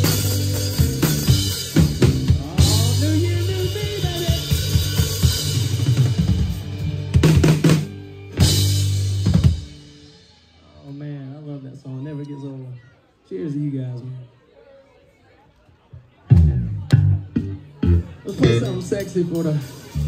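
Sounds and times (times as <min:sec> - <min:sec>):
rock country band playing: 0:00.0 - 0:11.6, 0:16.3 - 0:20.0.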